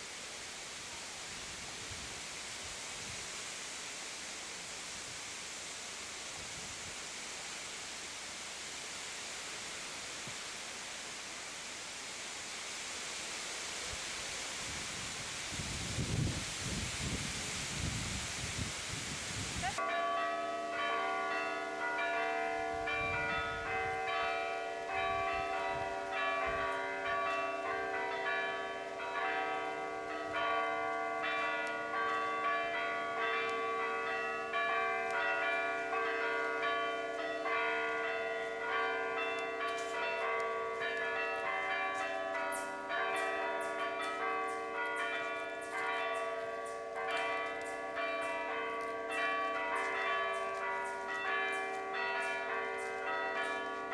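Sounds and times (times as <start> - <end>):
wind noise on microphone: 0.9 - 3.4, 6.3 - 7.1, 13.9 - 19.8, 22.7 - 24.0, 25.0 - 26.7
church bells playing a tune: 19.7 - 53.9.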